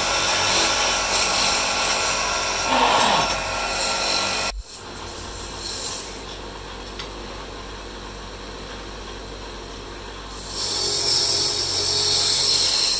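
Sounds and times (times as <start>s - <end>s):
tool cutting wood hissing: 0.0s - 6.3s, 10.3s - 12.9s.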